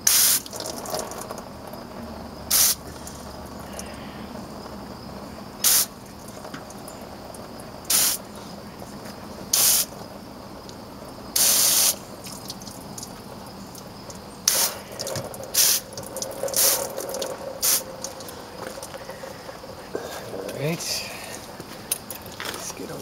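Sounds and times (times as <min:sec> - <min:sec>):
hose spray bursts hissing: 0:00.0 - 0:00.7, 0:02.5 - 0:02.8, 0:05.6 - 0:06.0, 0:07.9 - 0:08.3, 0:09.5 - 0:10.0, 0:11.4 - 0:12.4, 0:14.4 - 0:18.2.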